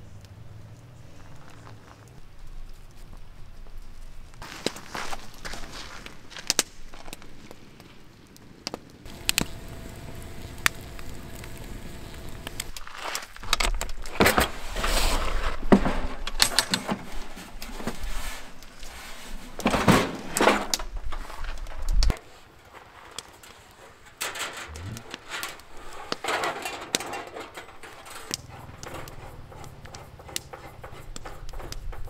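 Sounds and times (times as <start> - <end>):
handling clicks and knocks: 24.2 - 32.0.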